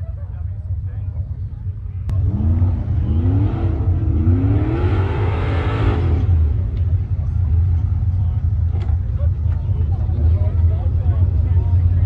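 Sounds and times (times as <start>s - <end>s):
engine revving: 2.1s - 8.0s.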